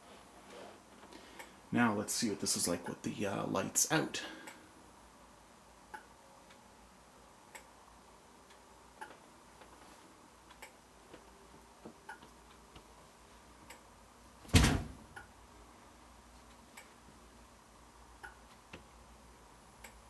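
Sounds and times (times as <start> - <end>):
light ticks: 19.8 - 20.0.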